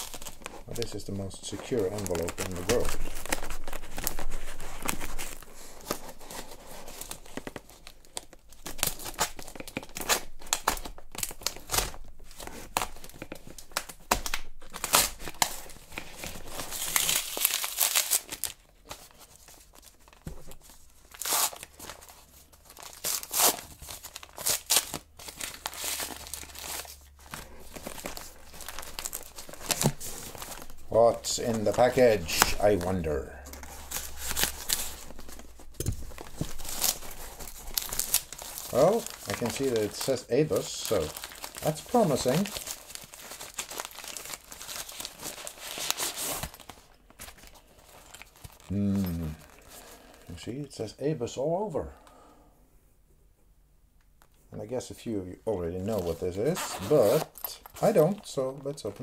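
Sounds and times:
plastic envelope crinkling and tearing: 0.0 - 50.4, 55.5 - 59.0.

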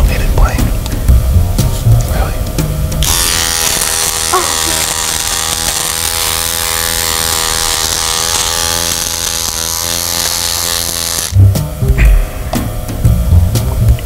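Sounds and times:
bass-heavy music beat: 0.0 - 14.0
electric hair trimmer buzzing: 3.0 - 11.4.

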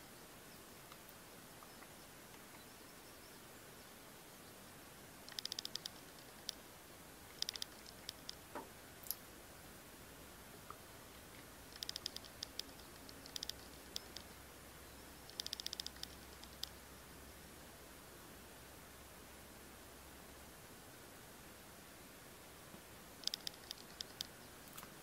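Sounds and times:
pigeon beak pecking clicks: 5.3 - 6.6, 7.3 - 8.4, 11.7 - 14.4, 15.2 - 16.8, 23.2 - 24.9.

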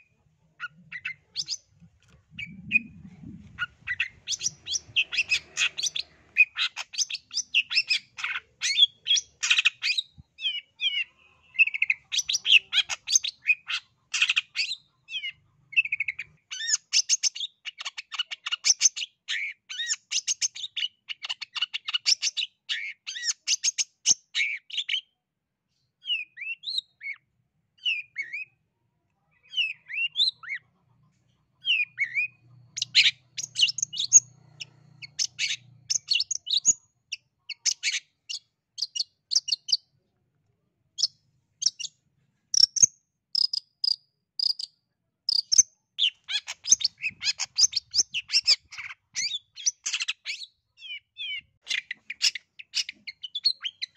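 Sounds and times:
shrike chattering song: 2.3 - 9.8.

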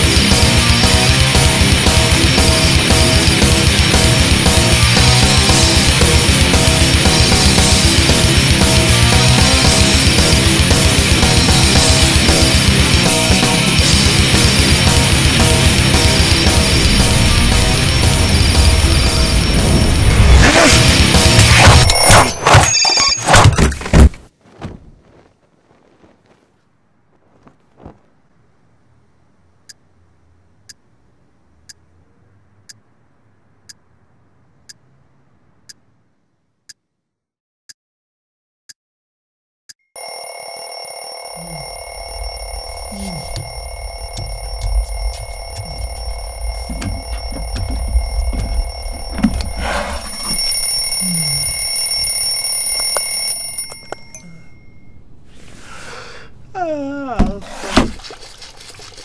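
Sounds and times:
alarm clock ringing: 13.7 - 20.0, 40.0 - 55.1
clock ticking: 43.0 - 50.4.

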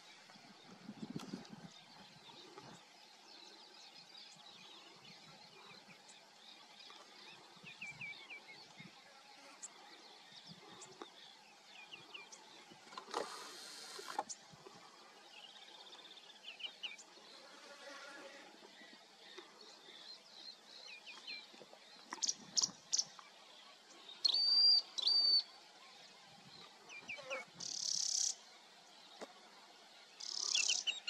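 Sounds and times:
small birds chirping: 26.5 - 28.4, 30.2 - 31.0.

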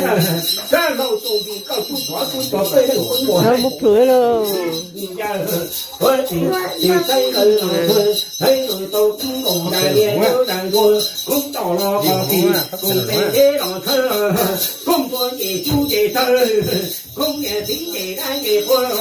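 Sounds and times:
metal ring rattle jingling: 0.0 - 19.0
person chanting: 2.5 - 8.2, 8.8 - 14.8.

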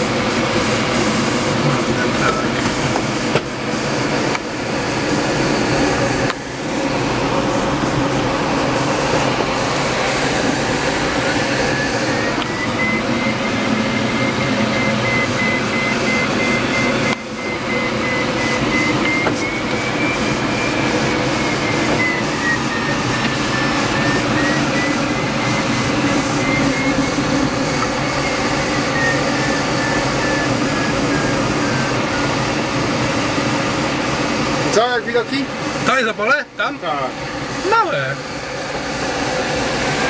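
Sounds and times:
light aircraft engine droning: 0.0 - 40.0
faint wavering whistle: 11.4 - 32.4.

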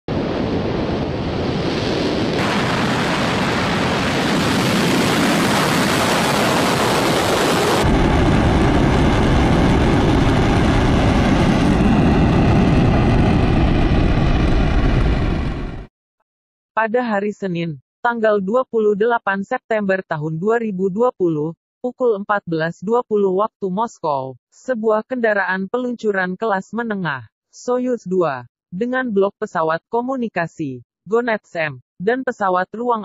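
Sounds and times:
rocket engines roaring: 0.1 - 15.9.

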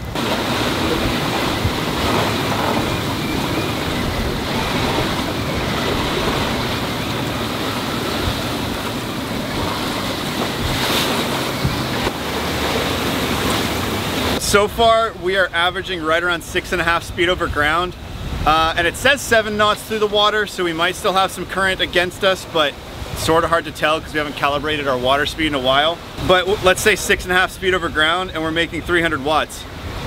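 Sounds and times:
wind buffeting microphone: 0.0 - 14.4, 16.7 - 18.9
wind rushing: 0.0 - 14.4
waves washing past hull: 0.0 - 30.0.

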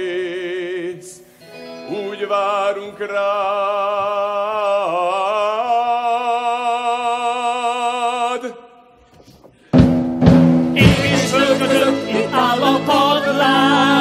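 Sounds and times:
heavy drum strikes: 9.7 - 11.6
orchestral music with singing: 10.8 - 14.0
voices singing long note: 10.8 - 14.0.

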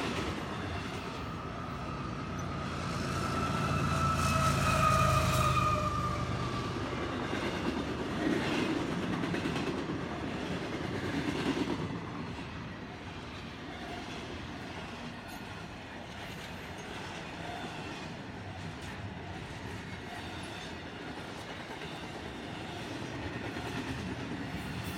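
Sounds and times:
freight train rumbling and rattling: 0.0 - 24.9
faint falling squeal: 0.4 - 7.2.

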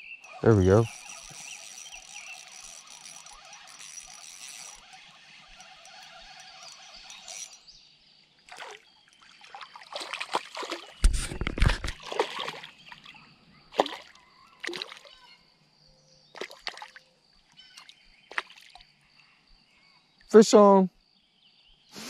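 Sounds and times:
fish splashing at water surface: 8.5 - 13.2, 13.8 - 15.1, 16.4 - 17.0, 17.8 - 18.8.

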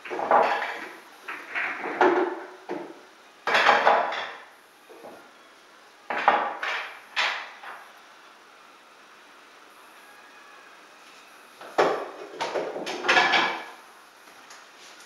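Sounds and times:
pool balls clacking: 0.0 - 5.2, 6.1 - 7.8, 11.6 - 13.8.

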